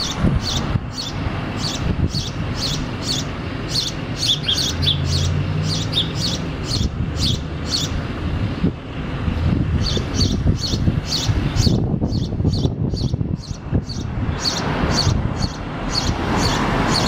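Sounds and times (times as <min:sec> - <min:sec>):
sparrow chirping: 0:00.0 - 0:08.1, 0:09.6 - 0:17.0.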